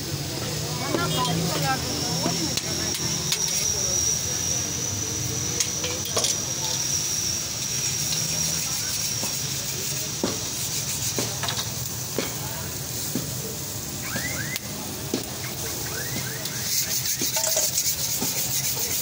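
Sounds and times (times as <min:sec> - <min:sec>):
buns sizzling on a griddle: 0:00.0 - 0:19.0
metal spatula scraping griddle: 0:07.7 - 0:11.9, 0:16.4 - 0:19.0.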